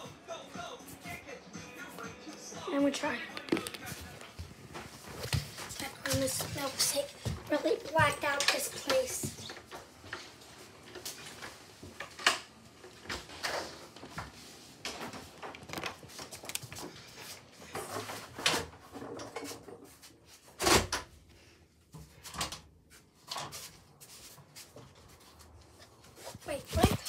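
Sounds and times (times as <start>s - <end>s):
knocks bumps and rubbing: 26.4s - 27.0s.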